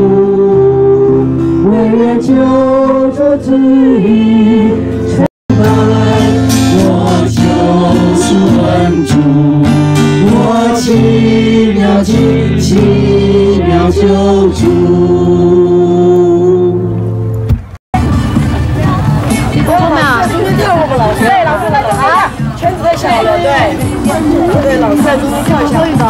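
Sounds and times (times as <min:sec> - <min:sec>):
group singing a hymn: 0:00.0 - 0:17.0
guitar: 0:00.0 - 0:26.0.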